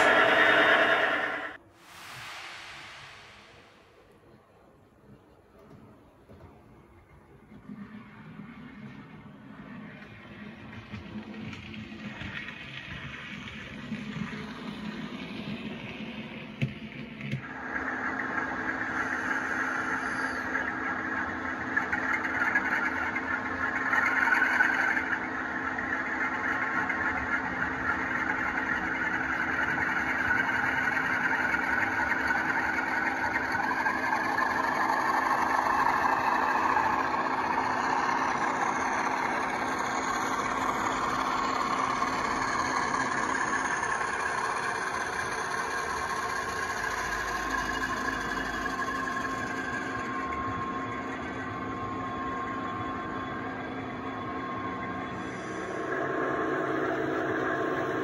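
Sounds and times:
model locomotive diesel engine sound: 0.0 - 58.0.

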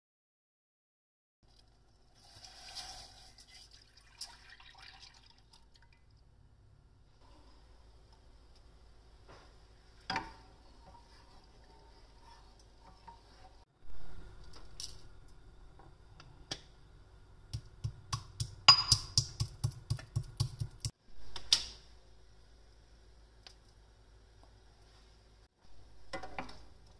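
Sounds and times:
pestle pounding in a mortar: 17.5 - 20.9.

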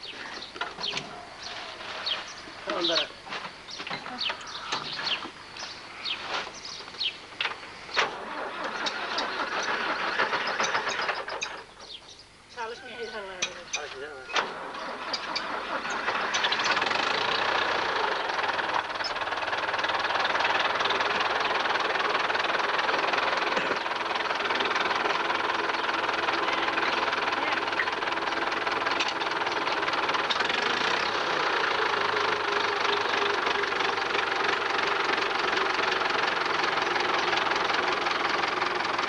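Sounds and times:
tractor engine idling: 0.0 - 39.0.

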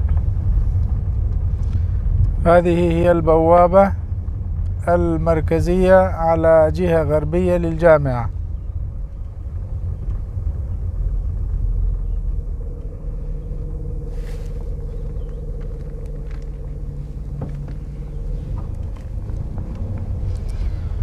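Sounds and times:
faint engine hum: 0.0 - 21.0
low rumble of moving vehicle: 0.0 - 21.0.

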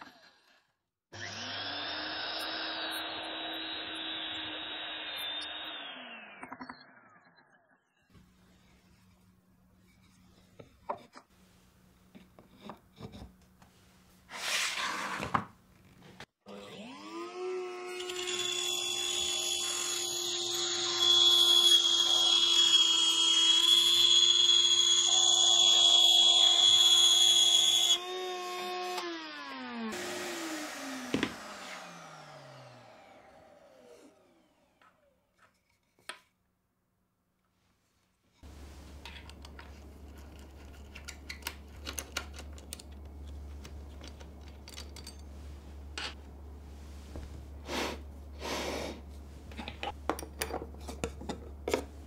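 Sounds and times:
router motor whine: 1.2 - 7.7, 16.5 - 35.1
wood scraping on table: 14.3 - 15.5
router bit hissing through wood: 18.1 - 34.8.

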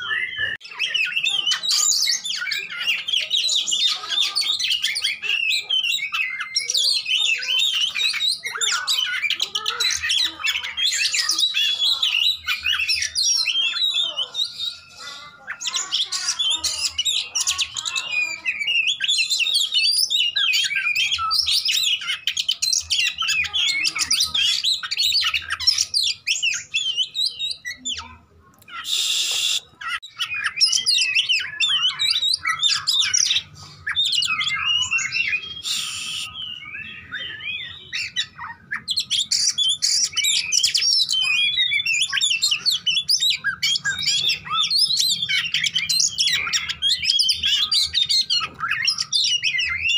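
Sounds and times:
bird singing: 0.0 - 49.9
harsh rasping bird call: 28.7 - 49.9.

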